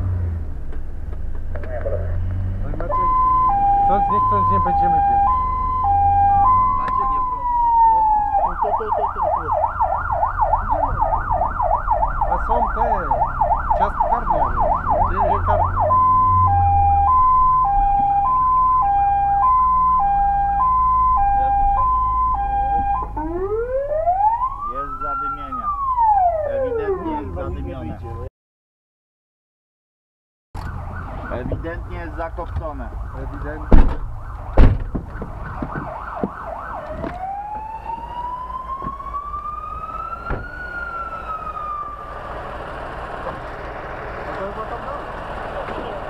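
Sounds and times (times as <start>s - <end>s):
fire engine siren: 2.7s - 27.6s, 30.6s - 46.0s
sharp knock: 34.6s - 35.9s
low engine rumble: 36.8s - 46.0s.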